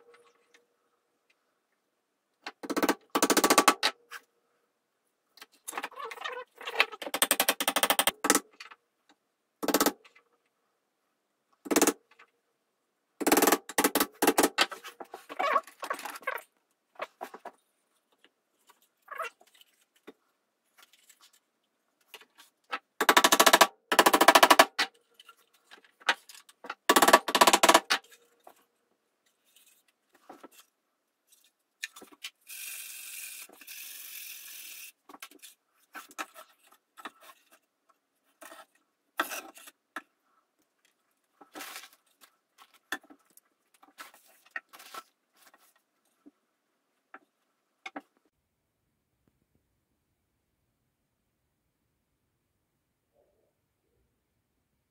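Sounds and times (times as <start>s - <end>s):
wooden pieces knocking and clicking: 22.0s - 28.6s.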